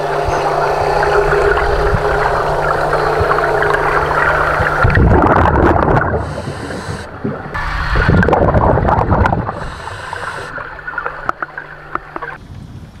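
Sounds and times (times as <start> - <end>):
bubbles gurgling underwater: 0.0 - 12.4
regulator inhale hiss: 6.1 - 7.2, 9.4 - 10.9.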